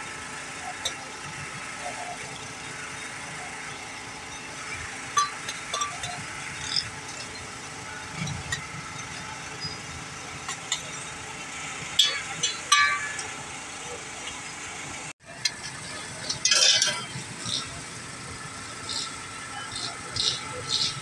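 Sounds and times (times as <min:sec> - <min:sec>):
street traffic hum: 0:00.0 - 0:21.0
utensils tapping metal griddle: 0:05.2 - 0:07.3, 0:12.0 - 0:13.4, 0:15.4 - 0:17.7.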